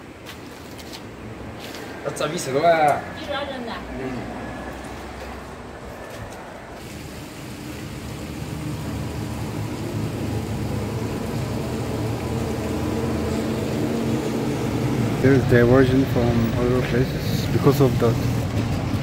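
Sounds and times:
vehicle engine running: 6.8s - 19.0s.

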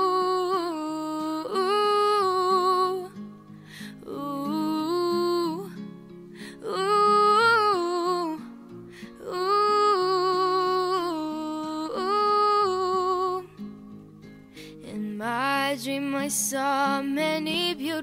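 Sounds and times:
acoustic guitar: 0.0s - 18.0s
person singing wordless ooh: 6.5s - 13.6s.

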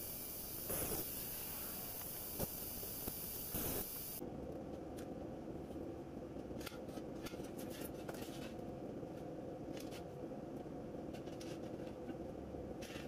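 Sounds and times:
steady machine hum: 0.0s - 4.6s.

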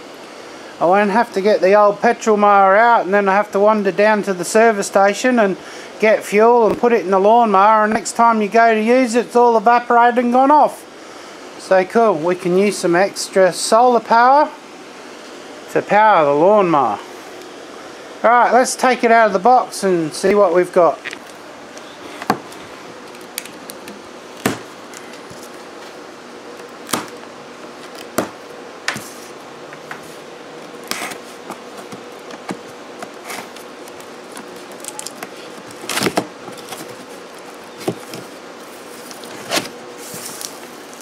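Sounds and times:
faint steady hum: 0.0s - 41.0s
cardboard handling: 26.6s - 41.0s
knife slitting cardboard: 34.3s - 40.6s.

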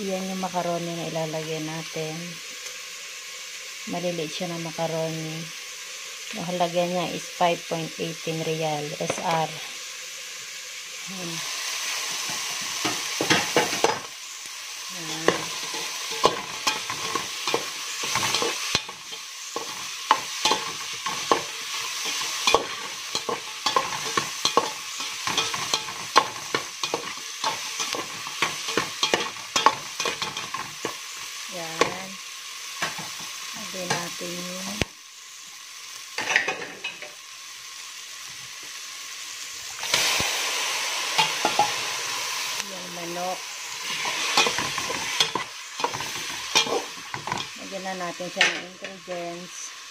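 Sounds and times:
vegetables sizzling in oil: 0.0s - 49.9s
metal spoon scraping pot: 15.2s - 30.9s.

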